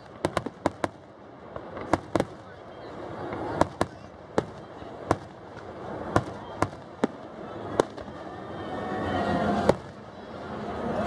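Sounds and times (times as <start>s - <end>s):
fireworks bursting: 0.0s - 10.6s
background noise: 0.0s - 11.0s.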